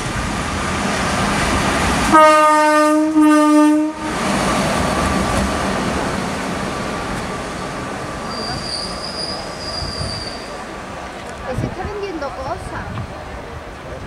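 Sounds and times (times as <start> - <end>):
locomotive running on rails: 0.0 - 14.0
locomotive horn: 2.1 - 4.2
high wheel squeal: 8.2 - 10.7.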